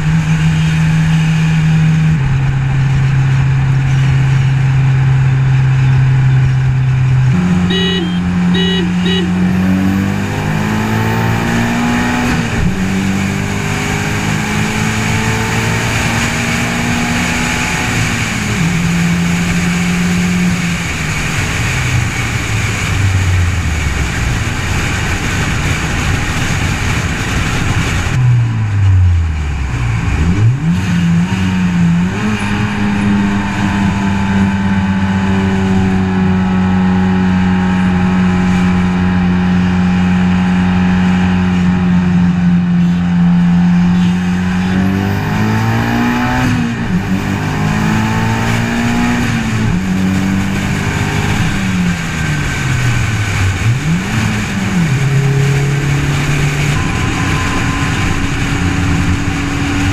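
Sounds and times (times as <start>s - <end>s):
car engine: 0.0s - 59.9s
wind rush: 11.4s - 34.6s, 49.3s - 59.9s.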